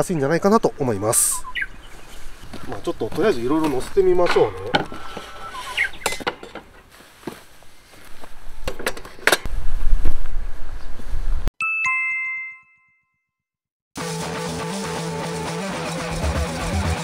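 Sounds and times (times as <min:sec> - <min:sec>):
camping gear clicks and knocks: 0:02.5 - 0:09.5
guitar background music: 0:14.0 - 0:17.0.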